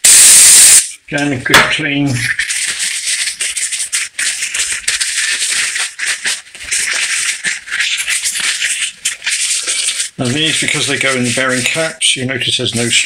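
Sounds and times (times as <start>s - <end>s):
paper towel rubbing: 1.9s - 13.0s.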